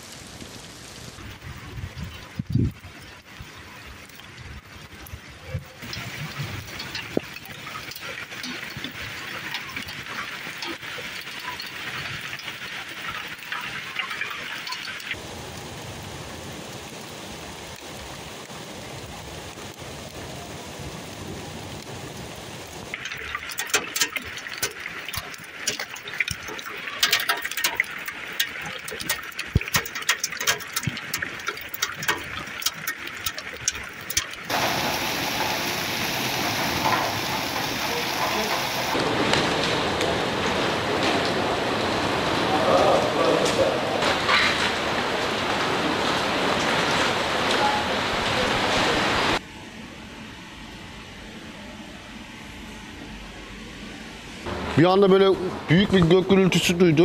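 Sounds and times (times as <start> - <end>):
heavy rain hissing: 0.0 - 49.4
hailstones striking hard surfaces: 5.8 - 15.2, 22.9 - 41.3.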